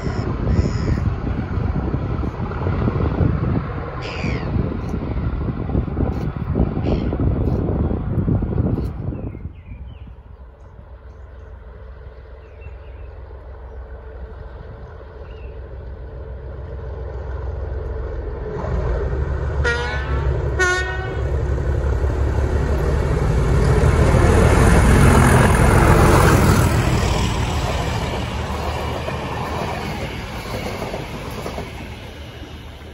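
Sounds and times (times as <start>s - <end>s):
diesel locomotive passing: 0.0s - 32.9s
train horn blasts: 19.6s - 21.4s.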